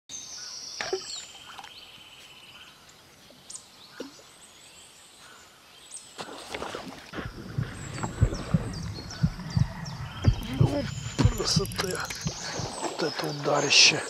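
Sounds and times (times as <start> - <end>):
small birds singing: 0.1 - 6.4, 7.1 - 14.0
fish splash: 6.2 - 8.7.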